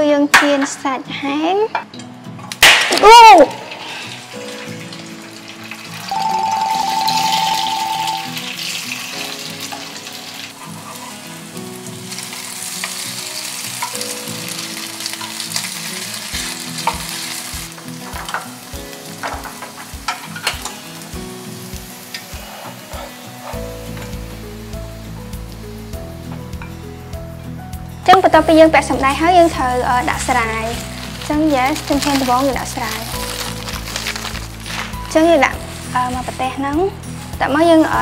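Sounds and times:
sausage sizzling in a frying pan: 3.0 - 38.0
utensils clicking against a pan: 12.1 - 20.8, 30.1 - 35.5.

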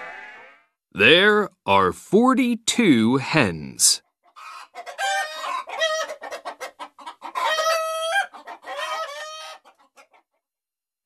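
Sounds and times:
hens clucking: 4.3 - 10.4.

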